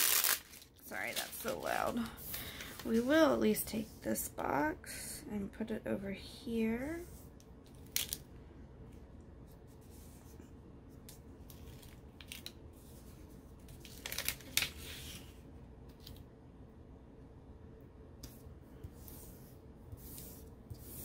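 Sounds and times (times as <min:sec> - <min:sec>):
paper rustling and crackling: 0:00.0 - 0:03.1, 0:13.1 - 0:15.4.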